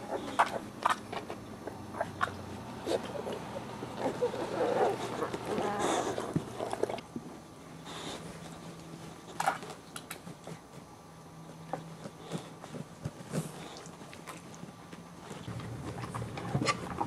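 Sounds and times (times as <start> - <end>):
puppies whimpering and grunting: 0.0 - 7.1.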